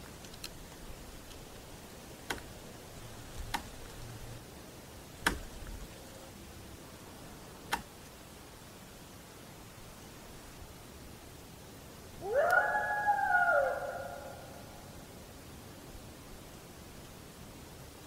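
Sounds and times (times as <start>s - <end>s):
sharp clicks: 0.0s - 1.6s, 2.2s - 2.6s, 3.3s - 4.3s, 5.2s - 6.0s, 7.7s - 8.2s
recorder hiss: 0.0s - 18.0s.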